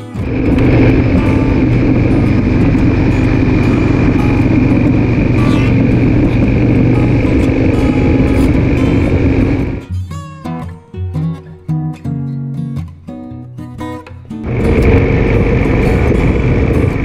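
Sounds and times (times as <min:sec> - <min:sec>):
motorcycle engine drone: 0:00.0 - 0:09.8, 0:14.4 - 0:17.0
wind noise: 0:00.0 - 0:09.8, 0:14.4 - 0:17.0.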